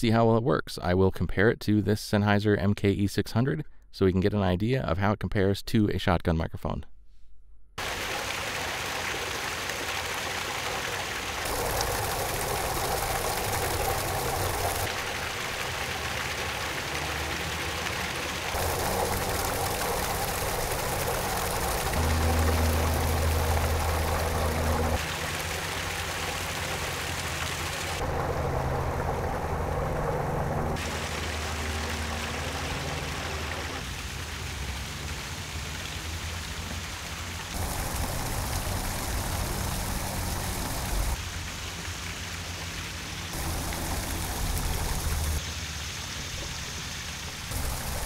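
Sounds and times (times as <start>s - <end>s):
waterfall rushing and splashing: 7.8s - 48.0s
low airplane rumble: 18.5s - 33.8s, 37.6s - 41.2s, 43.4s - 45.4s.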